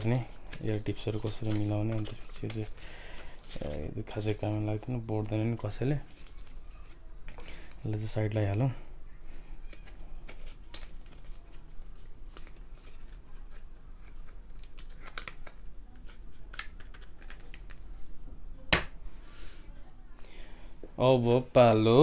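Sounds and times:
packaging clicks and rustles: 9.7s - 17.8s.

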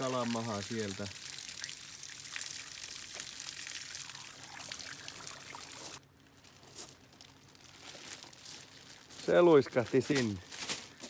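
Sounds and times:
hose water splashing into fish: 0.0s - 6.0s.

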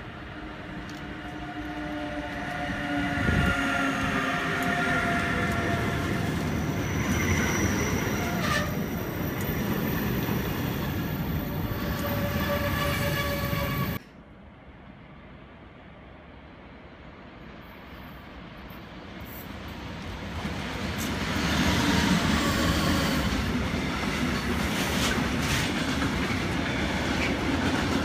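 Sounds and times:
train rolling on rails: 0.0s - 28.0s
train wheels squealing: 2.7s - 14.0s, 21.4s - 23.4s.

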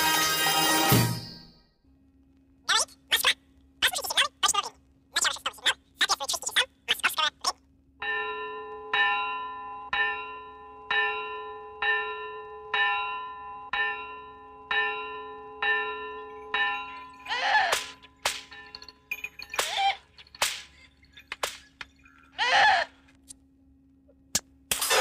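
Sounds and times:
bell ringing: 8.0s - 22.3s.

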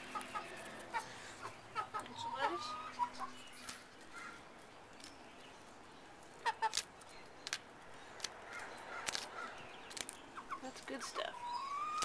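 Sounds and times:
hens clucking: 0.0s - 3.5s, 6.4s - 6.8s, 10.3s - 12.0s.

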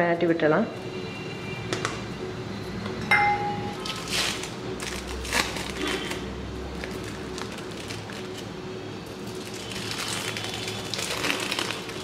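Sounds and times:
sharp ringing clink: 3.0s - 3.8s
plastic wrapper crinkling: 3.8s - 8.5s, 9.2s - 12.0s.

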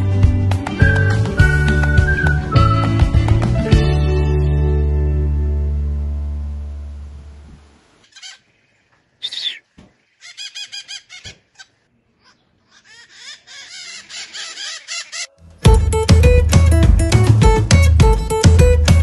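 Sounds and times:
background music: 0.0s - 7.4s, 15.3s - 19.0s
parakeets chirping: 8.0s - 15.3s.

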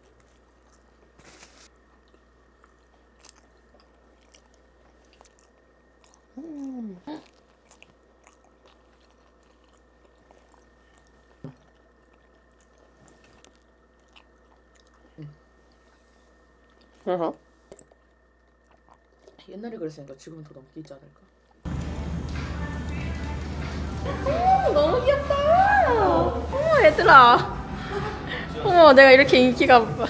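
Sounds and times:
person chewing: 0.0s - 19.5s.

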